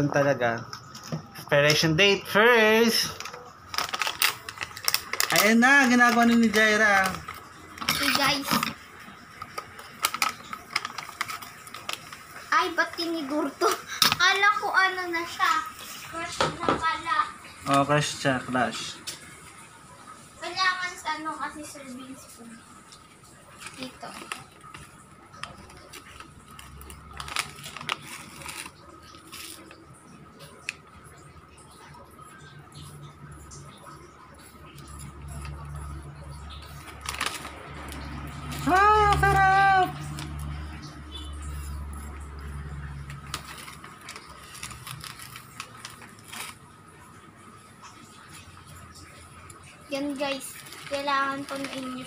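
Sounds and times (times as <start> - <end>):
plastic packet crinkling: 2.7 - 16.3, 23.2 - 47.1, 47.9 - 52.0.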